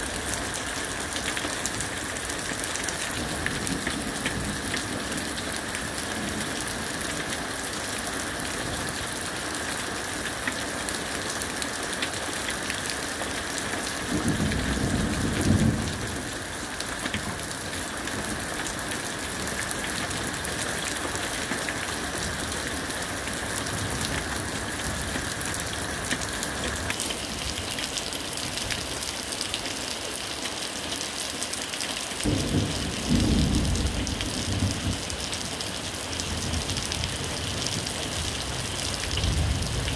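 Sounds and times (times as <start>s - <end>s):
steady rain falling: 0.0s - 39.9s
low thunder rolls: 32.3s - 35.2s.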